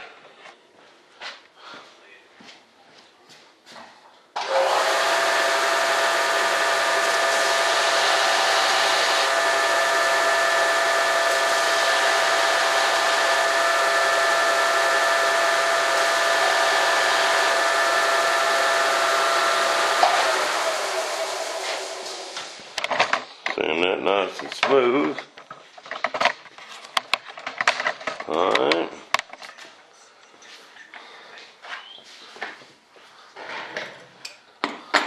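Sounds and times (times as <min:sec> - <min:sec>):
disc sander running: 0:04.4 - 0:22.7.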